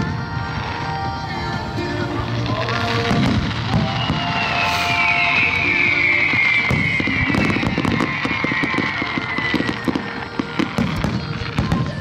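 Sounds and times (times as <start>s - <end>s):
fireworks popping and banging: 0.0s - 12.0s
falling whistle: 3.2s - 11.4s.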